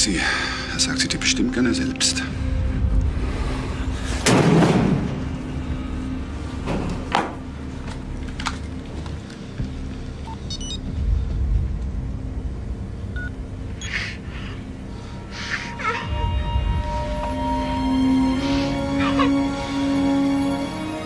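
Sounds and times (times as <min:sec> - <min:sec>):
low steady rumble: 0:05.1 - 0:18.6
mobile phone beeps: 0:10.3 - 0:10.8.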